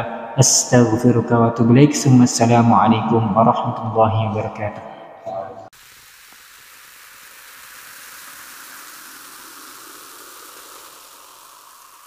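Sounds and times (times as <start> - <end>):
steady hissing noise: 5.6 - 12.0.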